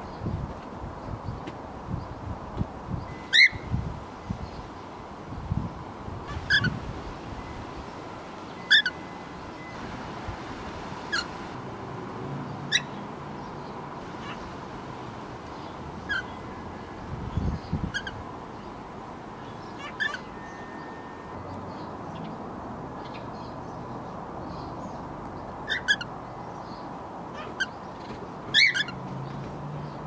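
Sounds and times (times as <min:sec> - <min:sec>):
cockatiels chirping: 0:08.7 - 0:09.0.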